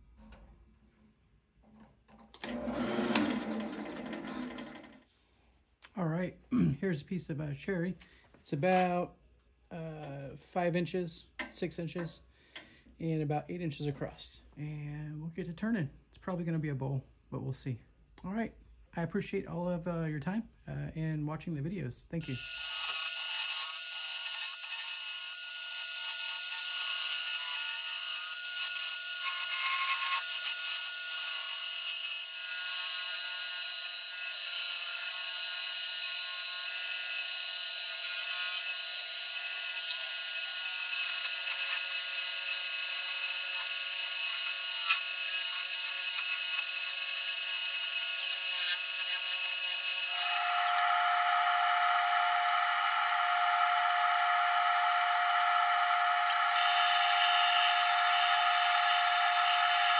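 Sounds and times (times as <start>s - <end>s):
lathe tool scraping wood: 2.4s - 5.0s, 22.3s - 59.9s
lathe humming: 37.6s - 59.9s.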